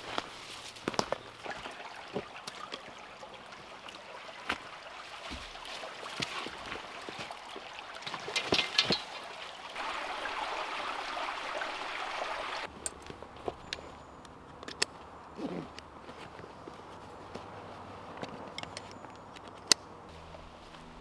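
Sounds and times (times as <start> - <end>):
water trickling: 1.2 - 12.7.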